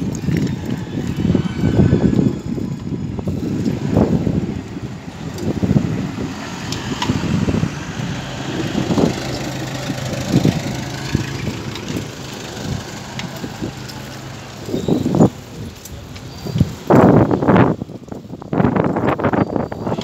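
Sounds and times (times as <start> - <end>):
vehicle engine humming: 0.0 - 16.9
wind rumble on microphone: 0.0 - 20.0.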